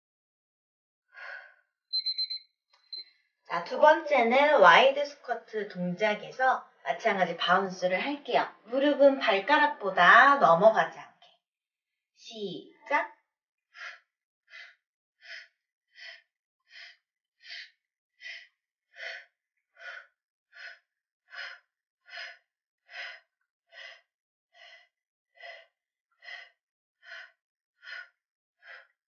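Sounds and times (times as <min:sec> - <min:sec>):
woman breathing rhythmically: 0:01.1 - 0:02.2, 0:13.7 - 0:29.0.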